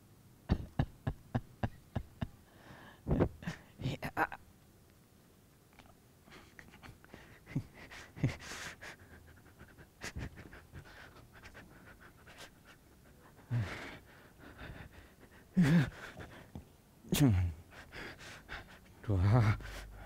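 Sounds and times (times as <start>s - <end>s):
man panting and grunting: 7.2s - 16.5s, 17.2s - 20.0s.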